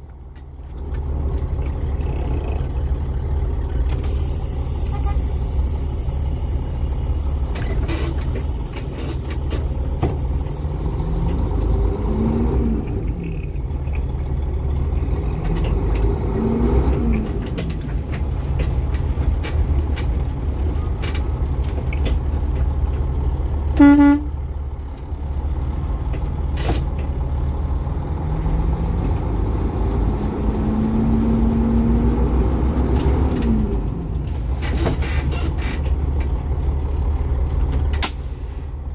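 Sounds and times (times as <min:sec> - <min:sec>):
diesel truck engine idling: 0:00.0 - 0:15.5.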